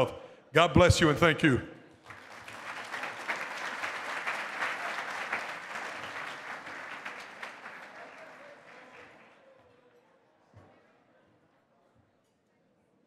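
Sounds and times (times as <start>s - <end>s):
audience applauding: 2.1s - 9.7s.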